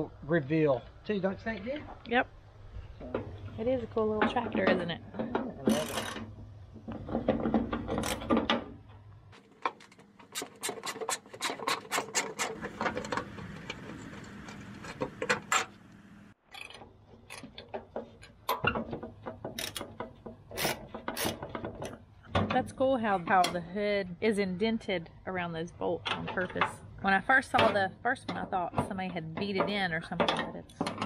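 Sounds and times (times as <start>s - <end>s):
metal scraping: 9.4s - 16.8s.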